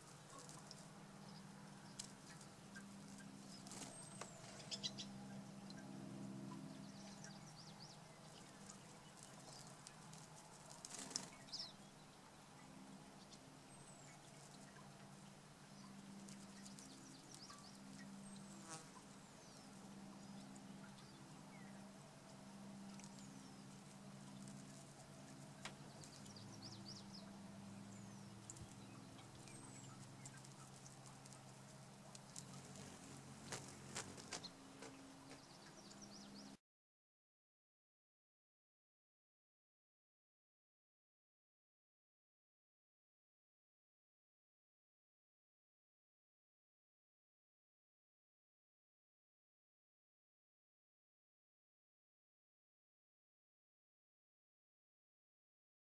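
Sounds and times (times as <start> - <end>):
hummingbird wings buzzing: 16.2 - 19.0, 22.9 - 27.0, 28.2 - 36.1
light water splashes: 22.8 - 36.4.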